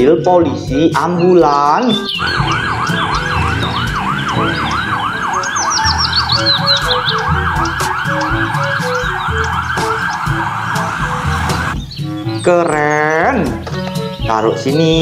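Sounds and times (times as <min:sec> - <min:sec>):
siren yelping: 0:02.0 - 0:11.8.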